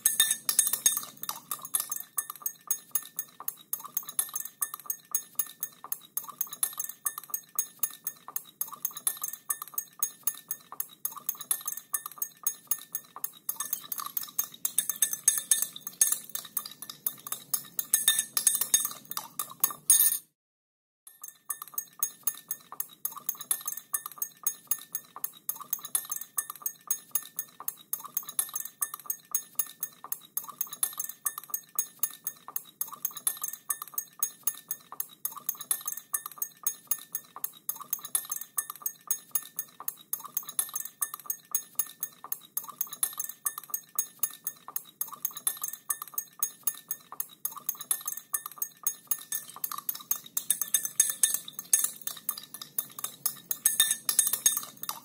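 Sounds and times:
glass ringing faintly: 0.0 - 3.4, 47.9 - 55.0
spoon clinking in a glass: 0.0 - 20.3, 21.1 - 55.0.

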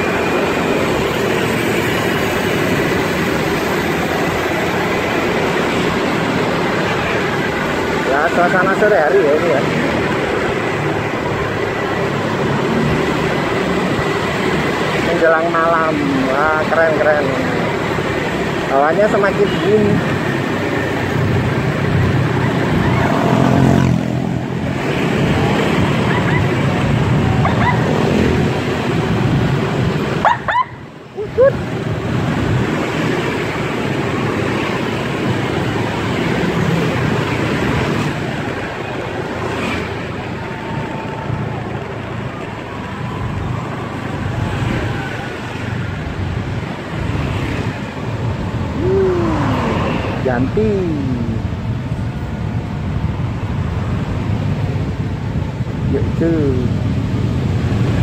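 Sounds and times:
motorcycle engine: 15.9 - 53.0.

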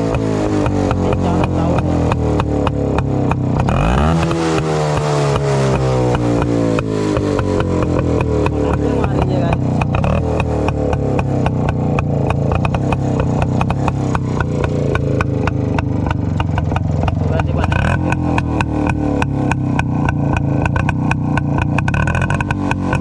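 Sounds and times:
motorcycle engine idling: 0.0 - 23.0.

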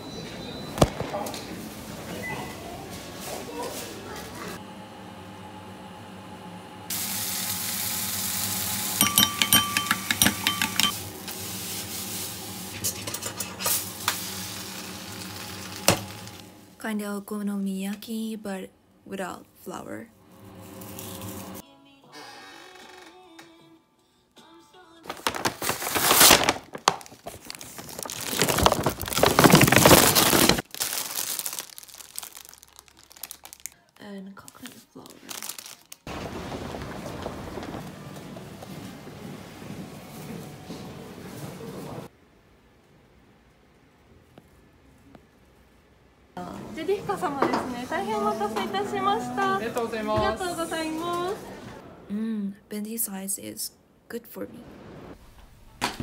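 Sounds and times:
food sizzling in a frying pan: 6.9 - 10.2, 10.9 - 16.4
spoon beating eggs in glass bowl: 9.0 - 11.0
plastic packaging crinkling: 25.1 - 36.2.

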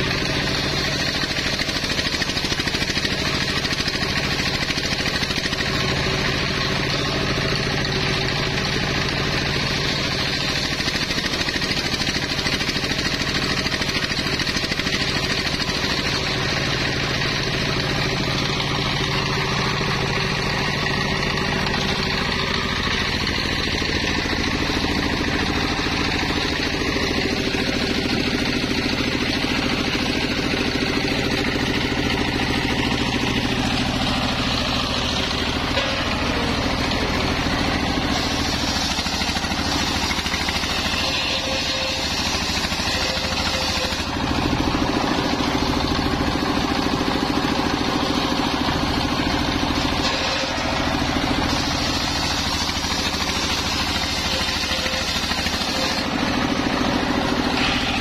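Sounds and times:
circular saw ripping wood: 0.0 - 46.2, 48.5 - 58.0
sawmill engine running under load: 0.0 - 58.0.

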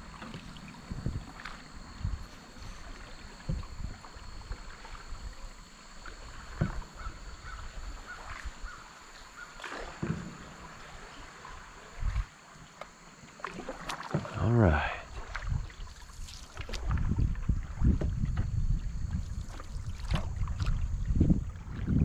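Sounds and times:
paddle strokes in water: 0.0 - 22.0.

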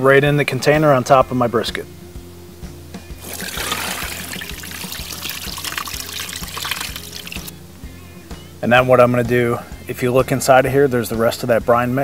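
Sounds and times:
quiet background music: 0.0 - 12.0
brine pouring and splashing: 3.2 - 7.5.

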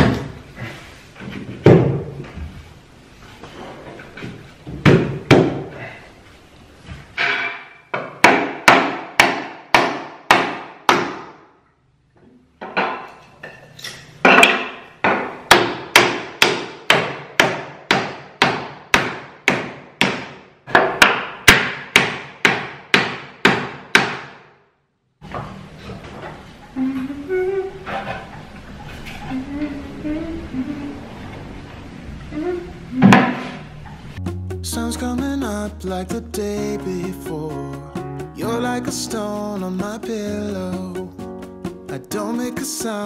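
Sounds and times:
hammer knocking on wooden shelf: 4.7 - 5.7, 7.4 - 11.3, 14.3 - 24.4.

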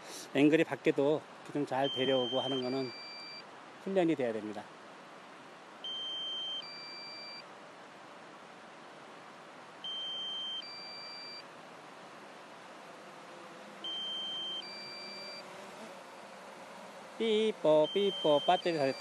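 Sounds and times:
drone low-battery warning beeping: 1.8 - 3.4, 5.8 - 7.4, 9.8 - 11.5, 13.8 - 15.5, 17.2 - 19.0.

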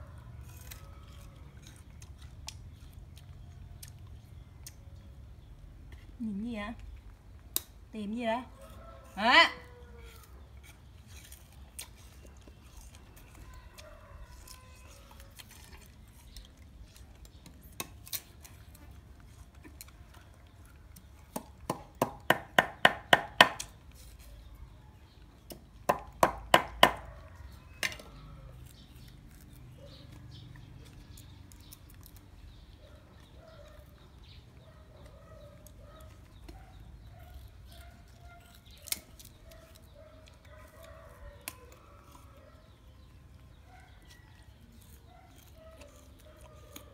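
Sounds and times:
knife chopping on wooden block: 21.4 - 23.7, 25.5 - 27.1.

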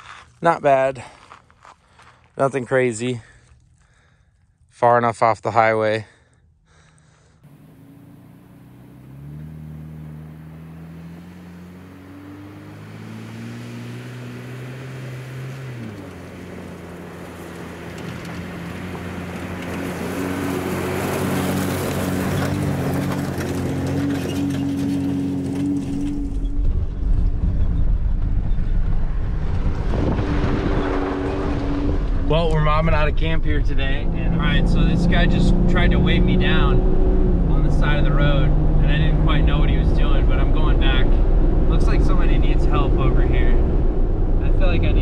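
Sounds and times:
truck engine on gravel track: 6.8 - 45.0
heavy low rumble: 25.8 - 45.0.

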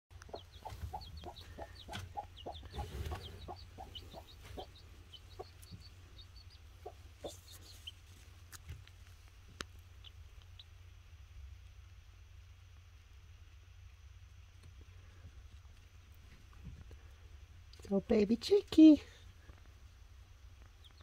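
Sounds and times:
chick peeping: 0.1 - 8.9, 9.6 - 10.8, 20.6 - 21.0
hen clucking softly: 0.2 - 8.2.

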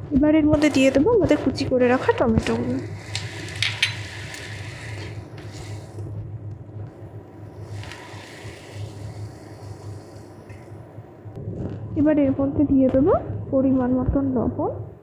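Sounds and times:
low hum: 0.0 - 15.0
spoon clicking and scraping: 2.4 - 5.1.

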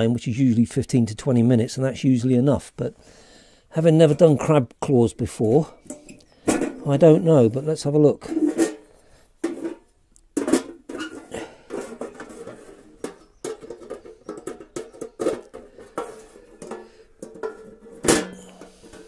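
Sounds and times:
metal lid clattering and scraping: 5.7 - 7.1, 8.2 - 19.0
metal clank ringing: 17.3 - 19.0.

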